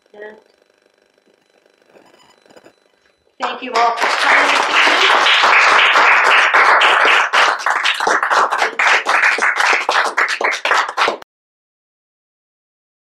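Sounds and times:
audience applauding: 3.4s - 11.2s.

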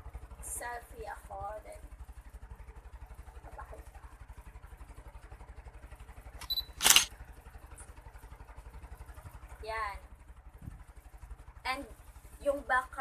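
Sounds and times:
low steady hum: 6.0s - 7.1s
loud shutter snap: 6.4s - 7.1s
phone camera shutter click: 6.4s - 7.1s.

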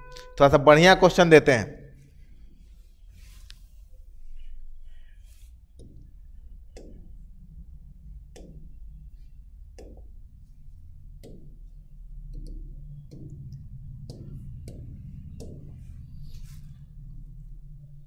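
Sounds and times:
steady low hum: 0.0s - 18.0s
taps on touchscreen glass: 12.3s - 15.9s.

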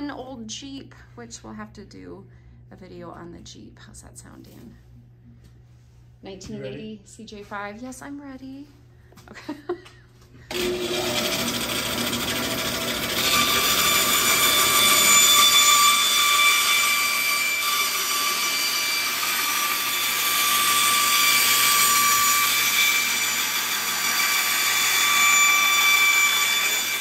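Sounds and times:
bandsaw cutting plastic: 10.5s - 27.0s.

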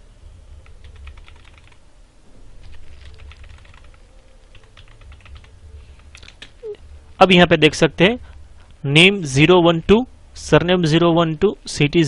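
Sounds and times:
keyboard typing: 0.6s - 1.8s, 2.6s - 6.8s.

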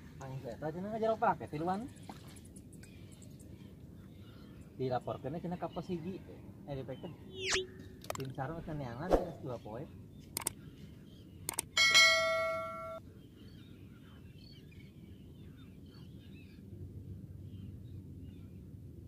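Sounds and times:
low steady background noise: 0.0s - 19.0s
faint chirping: 1.8s - 11.7s
mouse clicks: 10.4s - 10.6s, 11.5s - 11.7s
bright bell ding: 11.8s - 13.0s.

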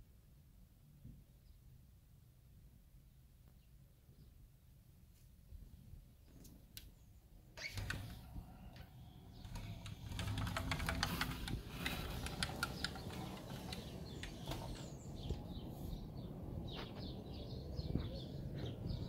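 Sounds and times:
birds clicking and rustling: 7.6s - 15.4s.

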